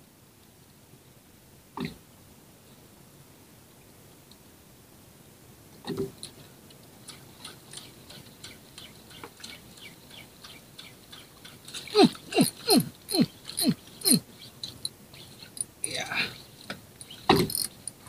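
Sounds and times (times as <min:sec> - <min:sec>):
fishing reel clicking: 0:17.0 - 0:18.0
reel whirring: 0:17.0 - 0:18.0.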